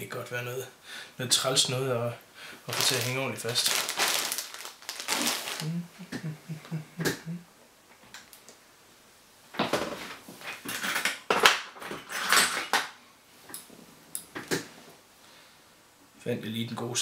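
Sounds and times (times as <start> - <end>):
metal tools clattering: 11.8 - 12.8.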